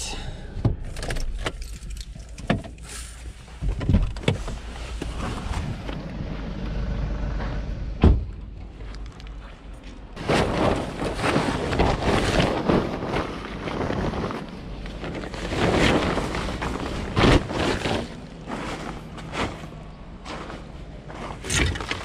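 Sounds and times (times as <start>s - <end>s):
plastic tarp rustling: 10.2s - 22.0s.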